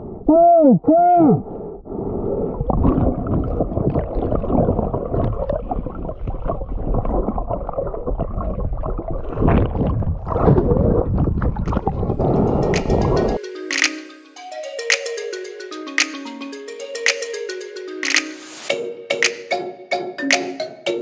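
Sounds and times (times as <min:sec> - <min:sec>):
muffled underwater gurgling: 0:02.0 - 0:13.4.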